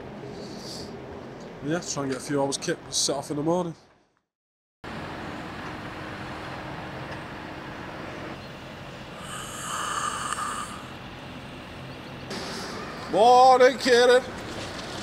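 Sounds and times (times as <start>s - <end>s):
steady background hum: 0.0s - 4.0s, 5.0s - 15.0s
man snoring: 9.2s - 11.0s.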